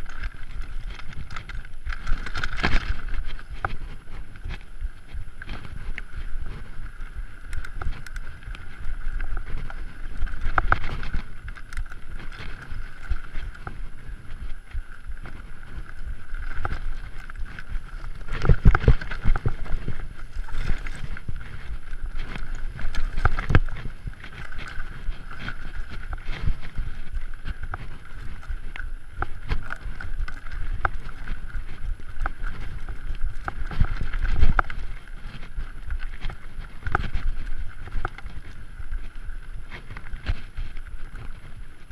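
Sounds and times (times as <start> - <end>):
bike knocking on rocks: 0.0 - 41.9
bike tyres rumbling over stones: 0.0 - 41.9
wind buffeting microphone: 0.0 - 41.9.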